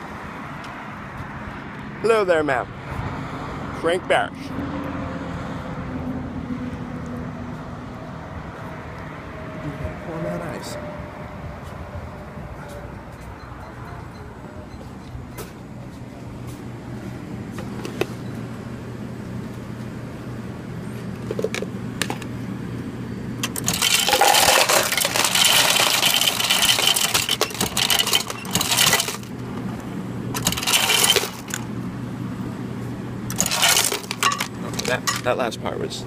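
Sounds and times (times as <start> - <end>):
ice cubes clattering into cup: 23.4 - 29.3, 30.4 - 31.6, 33.3 - 35.3.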